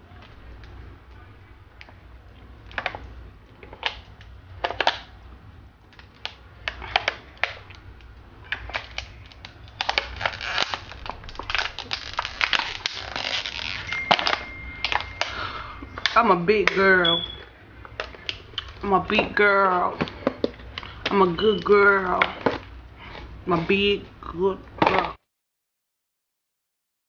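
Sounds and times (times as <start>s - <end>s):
plastic bottle crinkling: 8.4s - 16.8s.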